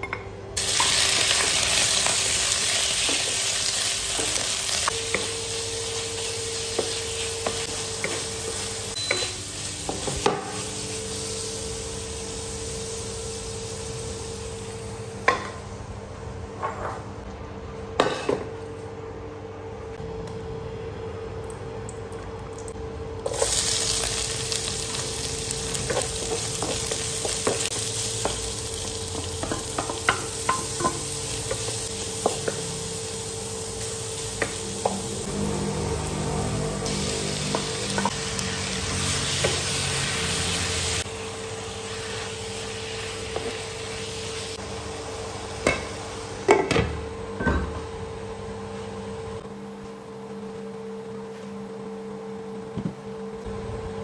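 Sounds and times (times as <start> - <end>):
onion and garlic sizzling in oil: 0.6 - 15.4, 22.6 - 46.7.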